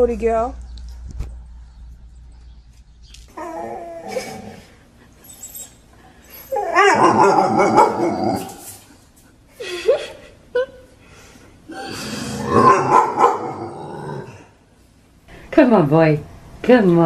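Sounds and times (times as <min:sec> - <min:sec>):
dog whining and yelping: 0:03.3 - 0:08.8.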